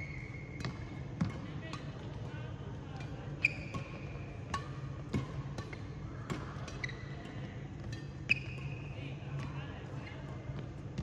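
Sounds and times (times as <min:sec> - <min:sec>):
sneakers squeaking on court floor: 0:00.0 - 0:02.1, 0:03.4 - 0:04.3, 0:06.7 - 0:09.0
racket hitting shuttlecock: 0:03.4 - 0:08.7.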